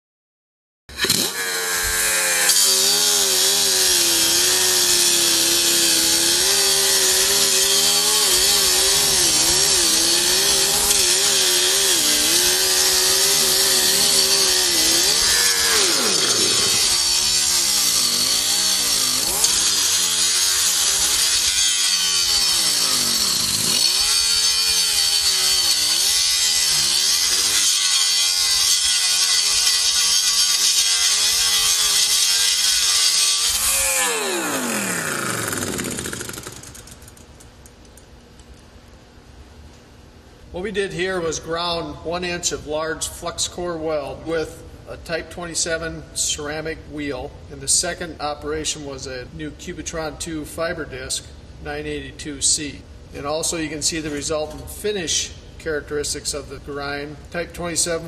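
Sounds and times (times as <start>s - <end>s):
angle grinder grinding metal: 0.9s - 37.9s.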